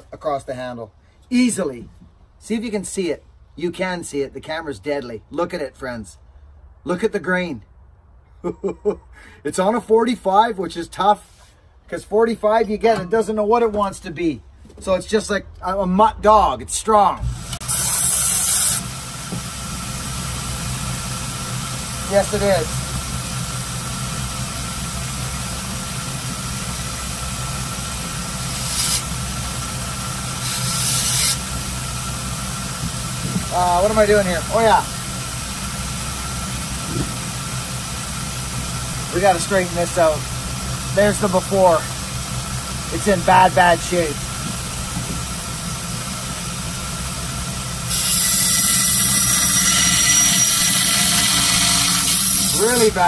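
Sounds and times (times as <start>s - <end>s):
short bursts of hiss: 17.6s - 18.9s
steel grinding hiss on belt: 17.6s - 53.0s
motor humming: 18.8s - 49.1s.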